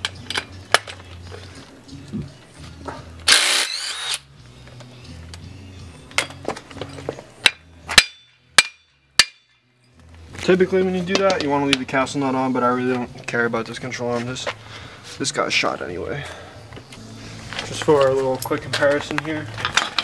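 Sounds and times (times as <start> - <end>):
cordless driver spinning: 3.3 - 4.3
sharp metal clanks: 7.4 - 9.6.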